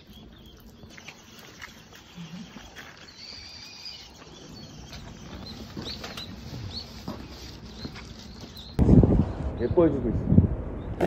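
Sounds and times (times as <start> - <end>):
small birds chirping: 0.0 - 8.8.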